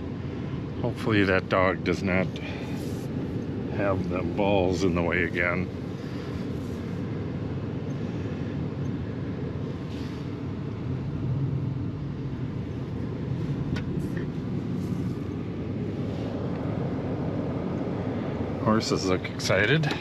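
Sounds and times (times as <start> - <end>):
truck engine and road rumble: 0.0 - 20.0.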